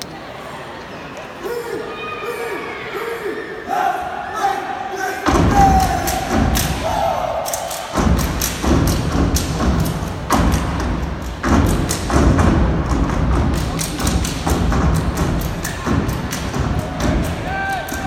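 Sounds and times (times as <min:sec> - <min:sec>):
heavy foot stomps: 0:05.3 - 0:06.7
hand claps and slaps: 0:05.7 - 0:06.9, 0:13.5 - 0:18.0.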